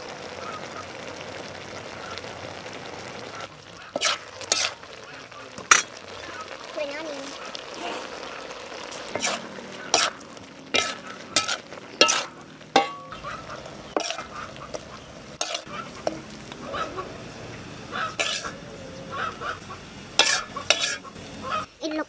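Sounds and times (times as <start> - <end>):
food sizzling: 0.0 - 22.0
spatula scraping wok: 3.6 - 5.0, 5.6 - 21.7
spatula clanking against pan: 9.1 - 13.2, 13.9 - 14.4, 15.4 - 16.2, 18.2 - 18.6, 20.2 - 21.1.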